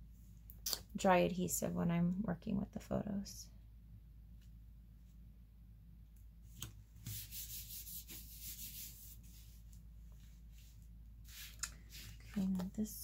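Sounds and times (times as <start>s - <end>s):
hands rubbing paper: 7.0s - 13.0s.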